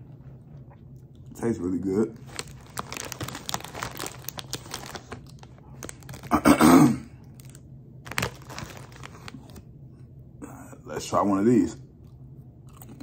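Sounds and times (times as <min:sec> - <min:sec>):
chip bag crinkling: 0:01.8 - 0:06.6, 0:07.3 - 0:09.6
chewing fries: 0:02.2 - 0:06.6, 0:07.2 - 0:09.6, 0:12.0 - 0:13.0.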